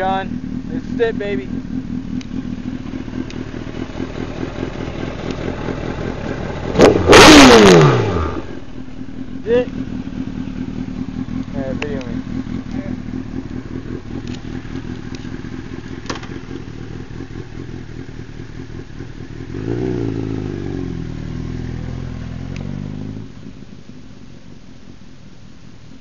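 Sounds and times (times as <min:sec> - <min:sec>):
motorcycle engine idling and revving: 0:00.0 - 0:26.0
sharp clicks: 0:02.1 - 0:02.4, 0:03.2 - 0:03.4, 0:05.2 - 0:05.4, 0:14.2 - 0:15.4.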